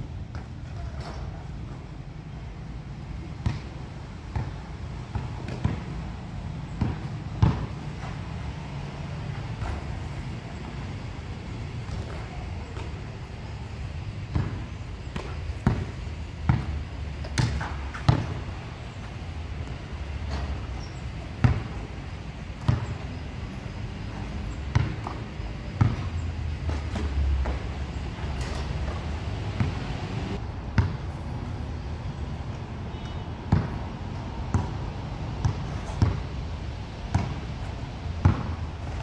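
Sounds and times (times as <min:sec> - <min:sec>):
basketball bouncing on a court: 0:03.4 - 0:08.2, 0:11.8 - 0:13.0, 0:13.8 - 0:29.8, 0:30.8 - 0:31.0, 0:32.9 - 0:33.8, 0:34.4 - 0:34.8, 0:35.4 - 0:36.4, 0:37.1 - 0:37.5, 0:38.2 - 0:39.0.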